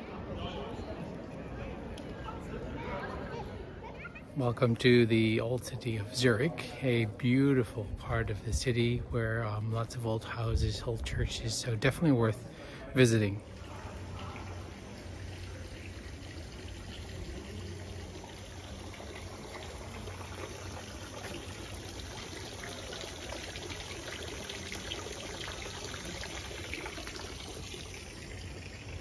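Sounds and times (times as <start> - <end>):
fountain water splashing into basin: 13.2 - 29.0.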